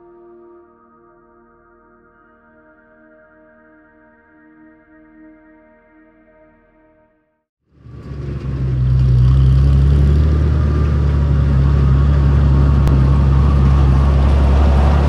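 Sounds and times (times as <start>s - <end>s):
tractor engine running: 7.8s - 15.0s.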